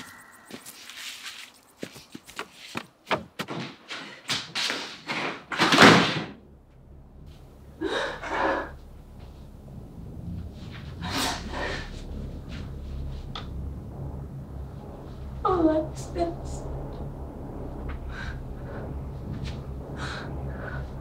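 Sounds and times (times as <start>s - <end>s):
low hum: 0.0s - 2.3s, 6.3s - 21.0s
quick footfalls on wood: 1.8s - 4.0s
breathy sounds: 7.2s - 14.2s, 17.1s - 21.0s.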